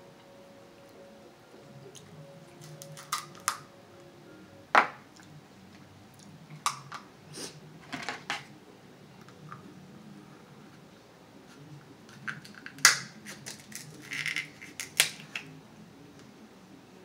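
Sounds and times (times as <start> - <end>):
crab shell cracking: 2.6 - 3.6, 12.2 - 15.5.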